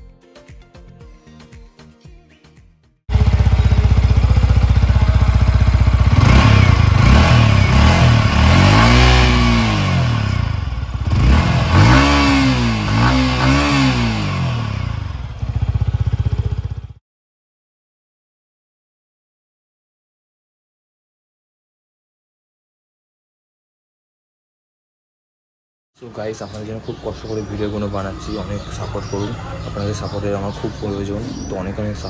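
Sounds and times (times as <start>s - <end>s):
motorcycle engine idling and revving: 3.1s - 17.0s, 26.2s - 32.0s.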